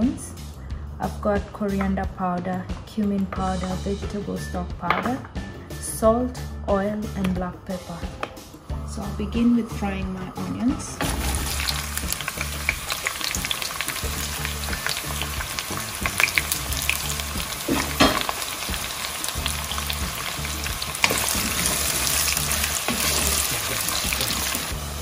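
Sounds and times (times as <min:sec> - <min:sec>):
onions sizzling in oil: 0:11.0 - 0:25.0.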